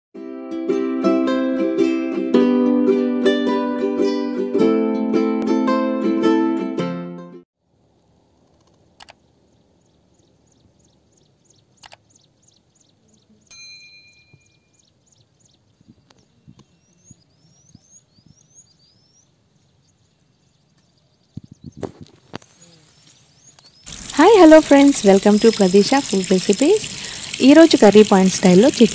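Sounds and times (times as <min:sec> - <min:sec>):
sharp clicks: 0:08.4 - 0:09.2, 0:11.8 - 0:12.1
birds calling: 0:08.8 - 0:13.6, 0:14.4 - 0:28.9
bird quick high chirp: 0:15.9 - 0:19.3
rising whistled bird notes: 0:16.7 - 0:19.3.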